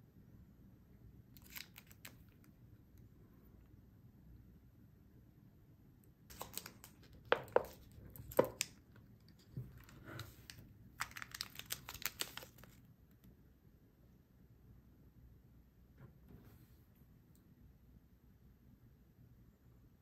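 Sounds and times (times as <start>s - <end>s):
foil sachets crinkling: 1.4s - 2.2s, 6.3s - 8.7s, 10.4s - 12.8s
plastic lid crackling and snapping: 6.3s - 8.8s.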